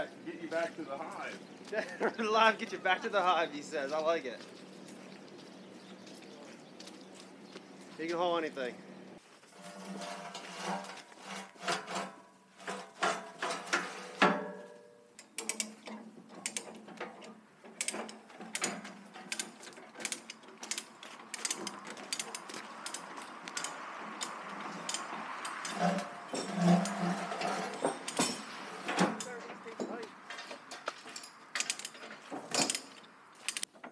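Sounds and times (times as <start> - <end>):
metal tie-down gear clanking: 9.6 - 33.9
chain binder ratcheting: 15.2 - 33.9.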